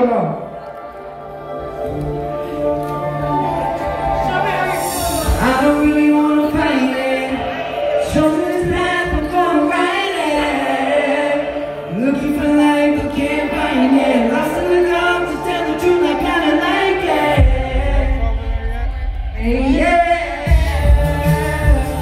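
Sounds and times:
backing track: 0:00.0 - 0:22.0
heavy bass: 0:16.3 - 0:22.0.

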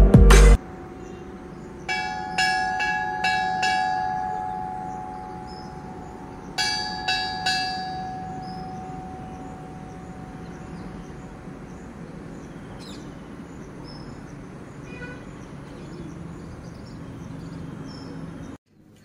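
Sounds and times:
outdoor background noise: 0:00.6 - 0:19.0
bell ringing: 0:01.9 - 0:11.7.

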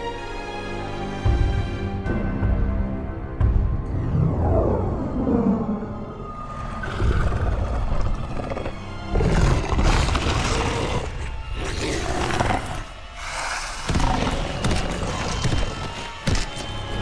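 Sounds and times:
orchestral film score: 0:00.0 - 0:17.0
monster roaring growls: 0:06.3 - 0:15.7.

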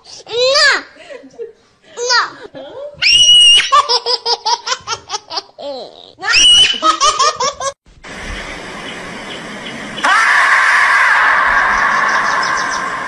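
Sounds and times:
high-pitched human laughter: 0:06.3 - 0:07.8
steady hiss: 0:07.9 - 0:10.1.

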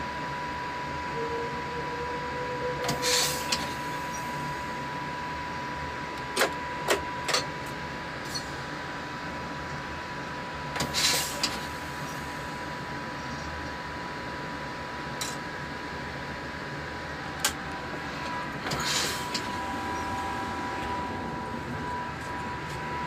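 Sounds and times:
low hum: 0:16.0 - 0:23.0
high electronic tone: 0:19.3 - 0:23.0.

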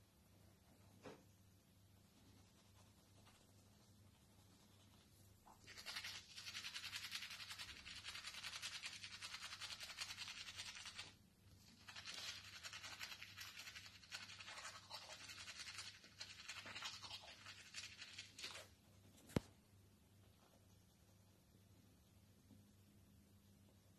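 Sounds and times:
toothbrush scrubbing teeth: 0:05.6 - 0:18.7.

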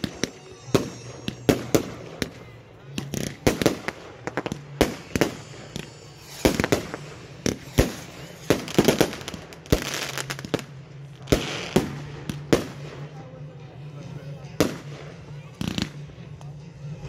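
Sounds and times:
firework crackling: 0:00.0 - 0:13.2
firework shells bursting: 0:03.0 - 0:10.7.

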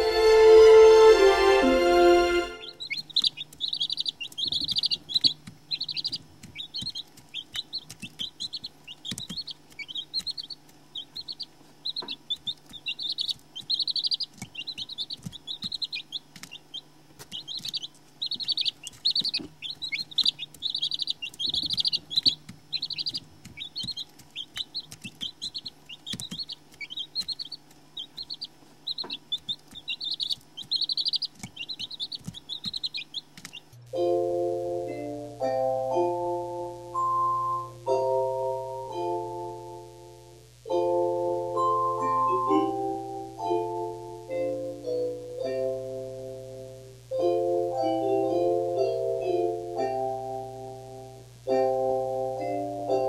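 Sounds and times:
chicks peeping: 0:00.0 - 0:34.2, 0:40.7 - 0:53.0
faint low hum: 0:00.0 - 0:53.0.

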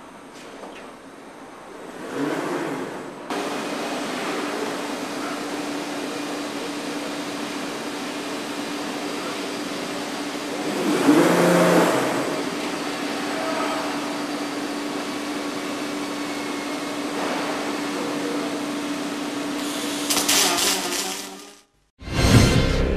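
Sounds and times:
machinery hum and hiss: 0:00.0 - 0:21.6
welding arc crackling: 0:19.6 - 0:21.9.

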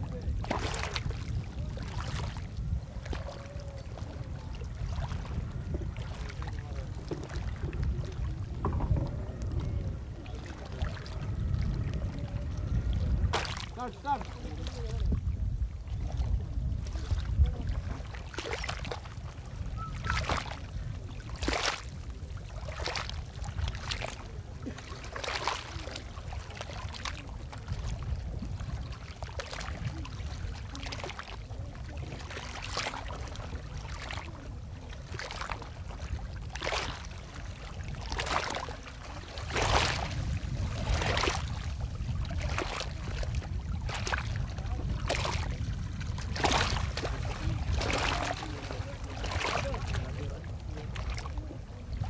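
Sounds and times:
low rumble: 0:02.8 - 0:13.7.

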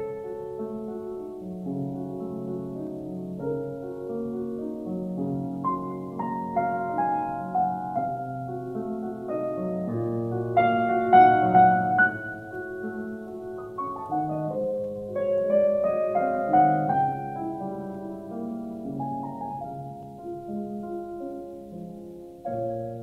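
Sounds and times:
piano music: 0:00.0 - 0:23.0.

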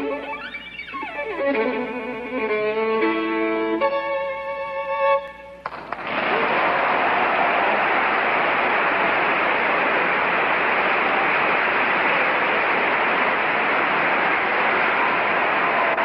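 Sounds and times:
large audience applauding: 0:05.6 - 0:16.0.

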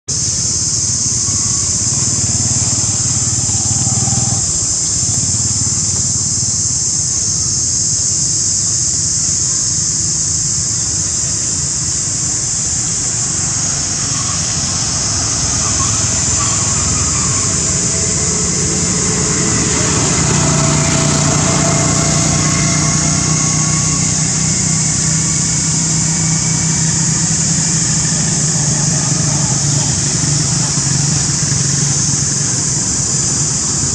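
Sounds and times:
high-pitched drone: 0:00.1 - 0:33.9
low motor-like rumble: 0:10.8 - 0:33.9.

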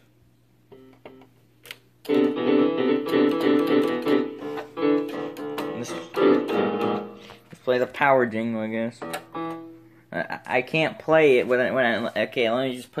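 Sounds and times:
electronic keyboard tune: 0:02.0 - 0:07.5, 0:09.0 - 0:10.0.

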